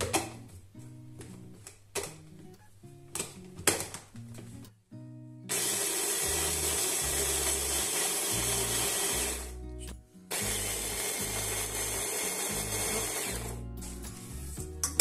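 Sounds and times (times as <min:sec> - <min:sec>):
hand blender grinding biscuits: 0:05.5 - 0:09.6, 0:10.3 - 0:14.2.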